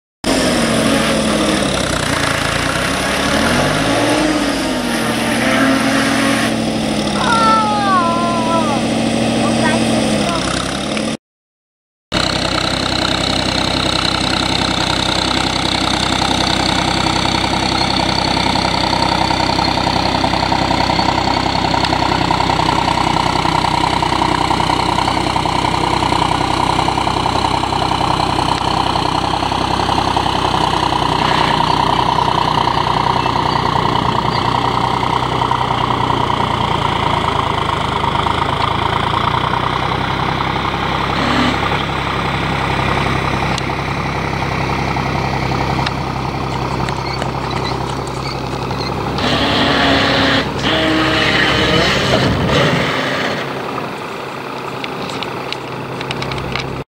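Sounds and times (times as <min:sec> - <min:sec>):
motor running with high whine: 0:41.1 - 0:41.9, 0:45.8 - 0:53.5.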